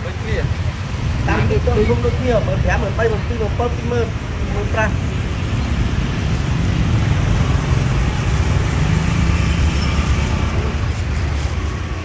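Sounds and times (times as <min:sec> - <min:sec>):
street traffic noise: 0:00.0 - 0:12.0
vehicle engine rumbling: 0:00.0 - 0:12.0.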